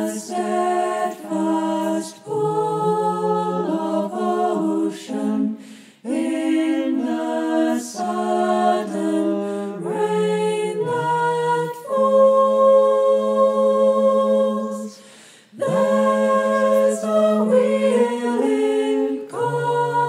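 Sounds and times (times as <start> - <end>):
mixed choir singing a cappella: 0.0 - 20.0.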